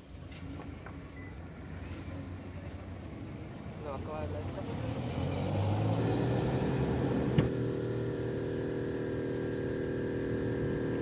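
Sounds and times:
steady mechanical hum: 7.3 - 11.0.

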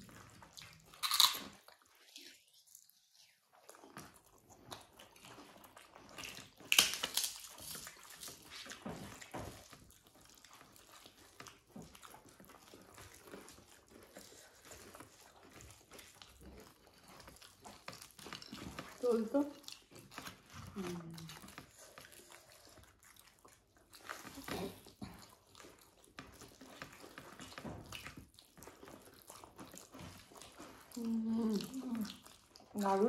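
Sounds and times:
wet sticky chewing clicks: 0.0 - 33.0.

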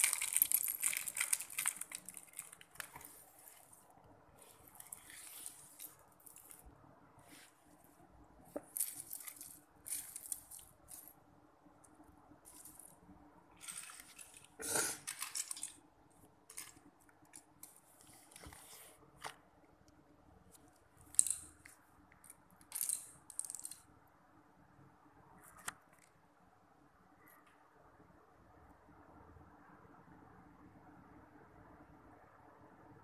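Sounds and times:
plastic bricks clattering on tile: 22.6 - 23.8.

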